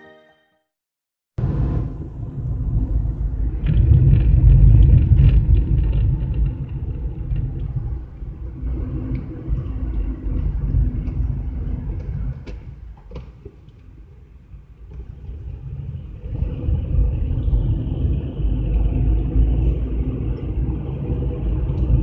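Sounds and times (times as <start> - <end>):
engine and road noise rumble: 1.4 - 22.0.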